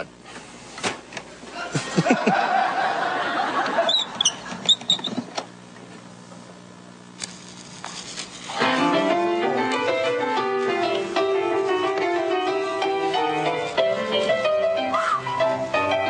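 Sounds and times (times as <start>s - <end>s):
audience laughing: 1.6s - 4.2s
short high squeaks: 3.8s - 5.3s.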